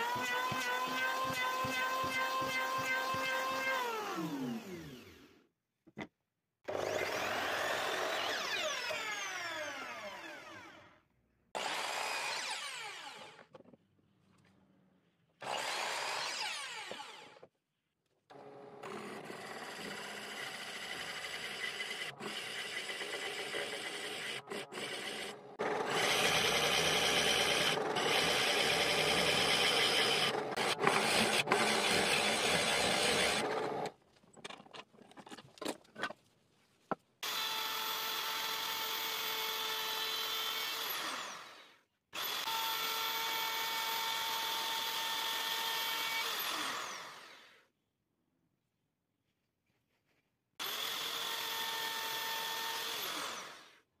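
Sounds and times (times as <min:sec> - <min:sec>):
miter saw cutting wood: 0:06.7 - 0:10.8, 0:15.4 - 0:17.4, 0:18.3 - 0:33.9, 0:37.3 - 0:47.6, 0:50.6 - 0:53.8
router running: 0:06.7 - 0:10.8, 0:11.6 - 0:13.4, 0:15.4 - 0:17.4, 0:18.3 - 0:33.9, 0:37.2 - 0:47.6, 0:50.6 - 0:53.7
drill press boring into wood: 0:18.4 - 0:34.0, 0:37.2 - 0:47.6, 0:50.6 - 0:53.8
saw blade winding down: 0:20.3 - 0:33.9.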